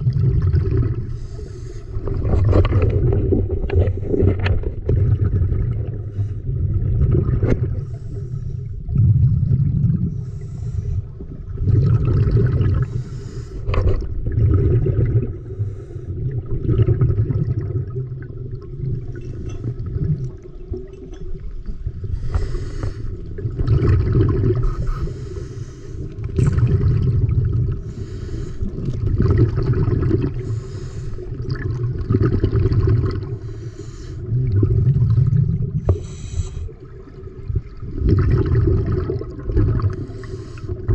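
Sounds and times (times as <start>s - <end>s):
bubbly rumbling: 0.0s - 25.2s, 26.1s - 40.9s
diver breathing underwater: 0.6s - 2.9s, 7.6s - 8.9s, 10.0s - 13.9s, 14.5s - 16.5s, 22.0s - 23.4s, 24.0s - 27.0s, 27.7s - 31.6s, 32.6s - 37.0s, 39.0s - 40.9s.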